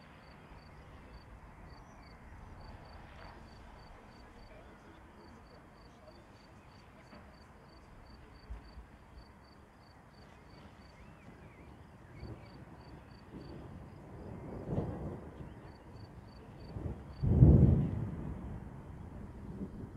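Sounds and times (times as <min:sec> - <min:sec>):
distant thunder rumble: 0:12.0 - 0:19.9.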